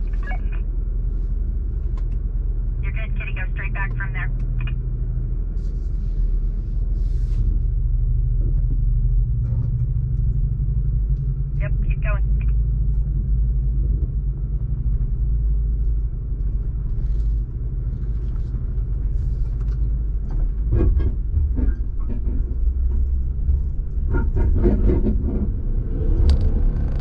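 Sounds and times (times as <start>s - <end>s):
engine and drivetrain rumble: 0.0s - 27.0s.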